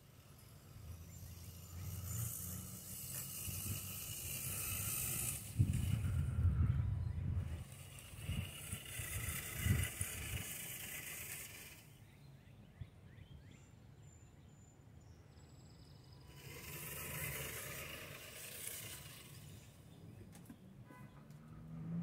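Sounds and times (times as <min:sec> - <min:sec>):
radio-controlled truck motor: 0:00.0 - 0:12.0, 0:16.2 - 0:19.9.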